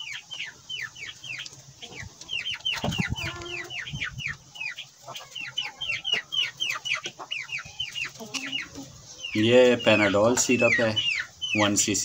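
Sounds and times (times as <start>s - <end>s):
chick peeping: 0.0s - 12.0s.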